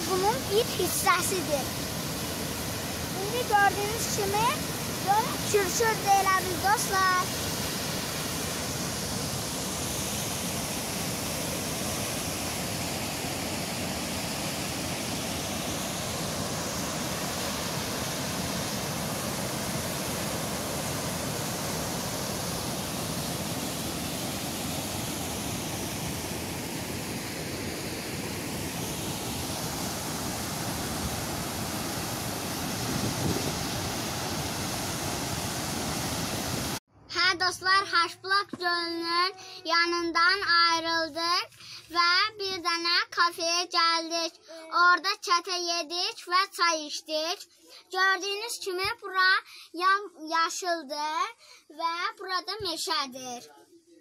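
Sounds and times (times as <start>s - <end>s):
water rushing: 0.0s - 36.8s.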